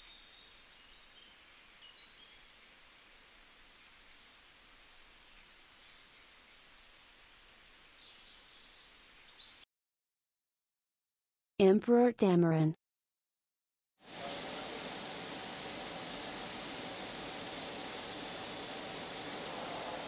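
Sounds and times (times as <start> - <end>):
small birds chirping: 0.0 - 9.6, 16.1 - 20.0.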